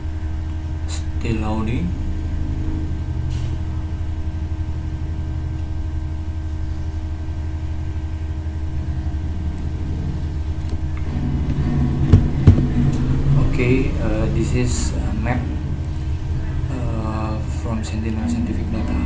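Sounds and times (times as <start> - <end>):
low machine hum: 0.0 - 19.0
short thumps: 11.6 - 12.9.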